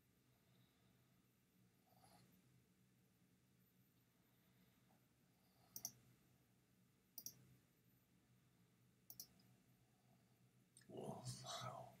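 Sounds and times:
computer mouse clicks: 5.7s - 6.0s, 7.2s - 7.5s, 9.1s - 9.5s.

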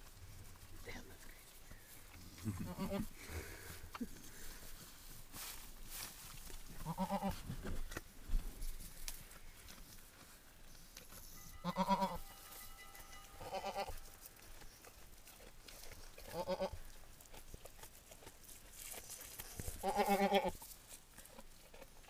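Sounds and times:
goat bleating: 2.5s - 3.2s, 6.8s - 7.4s, 11.6s - 12.4s, 13.4s - 14.0s, 16.2s - 16.8s, 19.7s - 20.6s.

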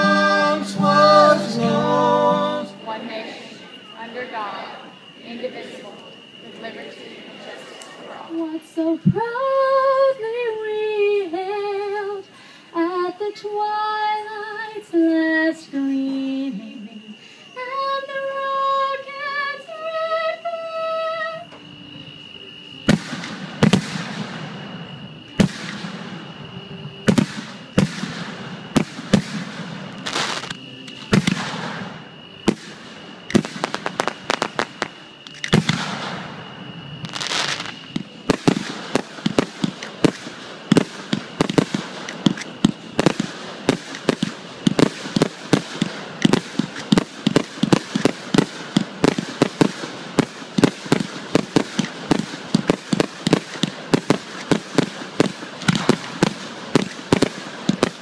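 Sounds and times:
fireworks bangs: 22.8s - 58.0s.

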